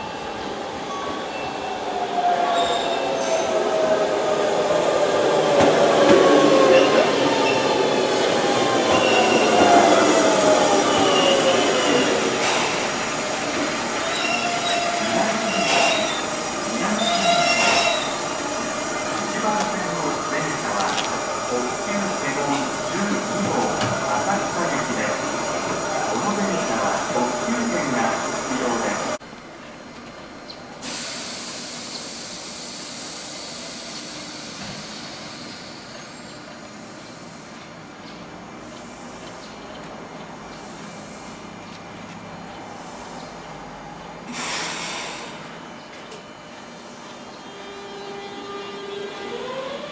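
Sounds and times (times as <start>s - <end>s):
train drive whine: 0.0s - 30.8s
wheel and brake squeal: 14.1s - 16.3s, 16.9s - 18.2s
short hisses: 44.3s - 45.5s.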